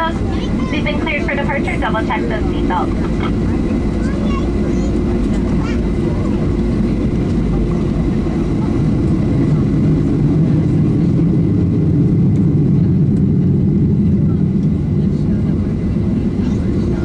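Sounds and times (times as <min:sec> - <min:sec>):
jet engine rumble in cabin: 0:00.0 - 0:17.0.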